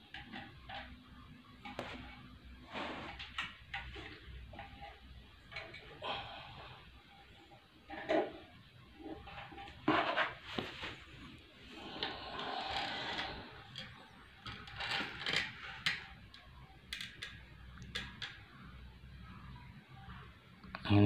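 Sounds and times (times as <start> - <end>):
cloth rustling: 10.3 - 11.3.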